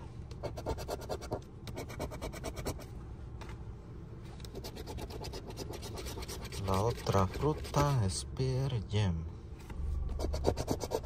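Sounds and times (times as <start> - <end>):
coin scratching a ticket: 0.5 - 2.8, 4.5 - 8.1, 10.2 - 11.0.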